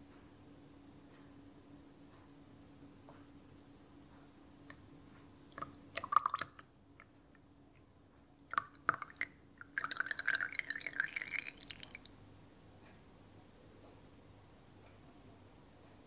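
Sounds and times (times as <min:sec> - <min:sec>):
wax pouring into jar: 0:08.6 - 0:12.1.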